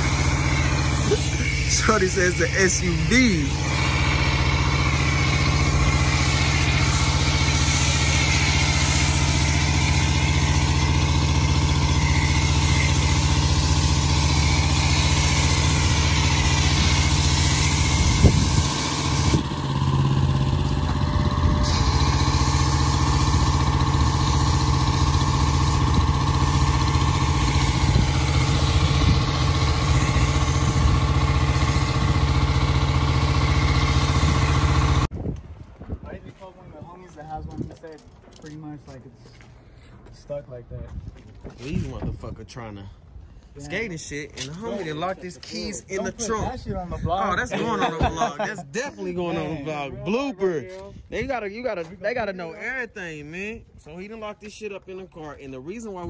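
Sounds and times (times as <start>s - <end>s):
foam cannon spray hissing: 0.0s - 35.1s
small gasoline engine running: 0.0s - 35.1s.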